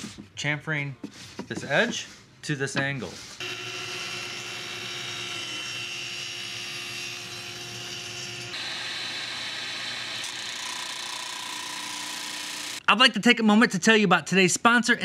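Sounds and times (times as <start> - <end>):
table saw cutting wood: 3.4 - 12.8.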